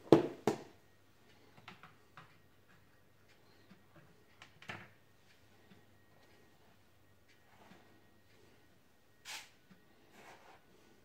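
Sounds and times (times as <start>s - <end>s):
plastic containers knocking on counter: 0.1s - 0.7s.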